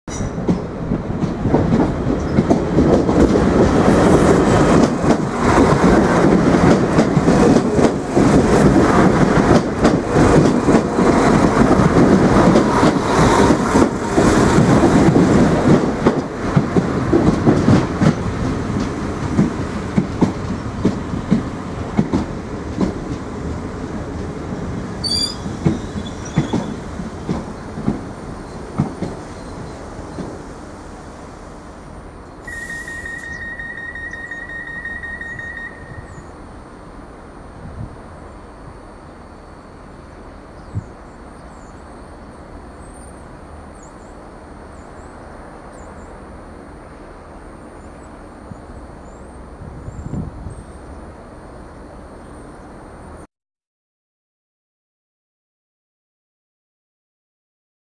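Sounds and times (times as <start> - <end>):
train wheels clattering over rail joints: 0.1 - 23.3, 25.0 - 29.3
train wheels squealing: 25.0 - 26.8, 32.4 - 36.4.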